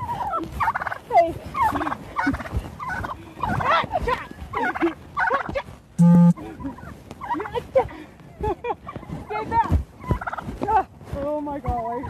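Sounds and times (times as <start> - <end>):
turkey gobbling: 0.0 - 3.8, 4.5 - 7.5, 10.0 - 10.4
loud steady tone: 6.0 - 6.4.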